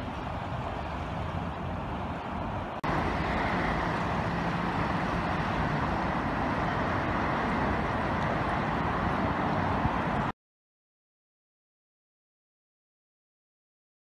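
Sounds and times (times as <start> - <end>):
river rushing: 0.0 - 10.3
road traffic hum: 0.0 - 10.3.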